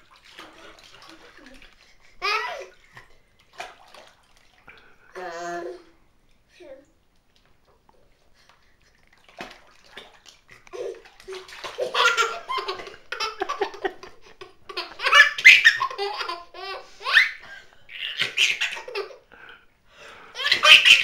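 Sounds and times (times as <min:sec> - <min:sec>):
baby laughing: 0:02.2 - 0:02.8, 0:10.6 - 0:19.2, 0:20.4 - 0:21.0.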